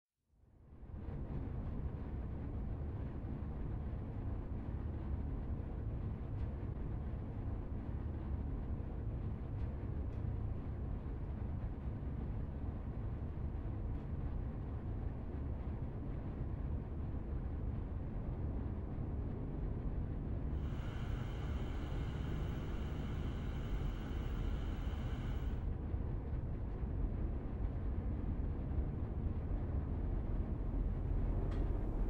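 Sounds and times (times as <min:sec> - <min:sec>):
low rumbling drone: 0:18.3 - 0:26.1.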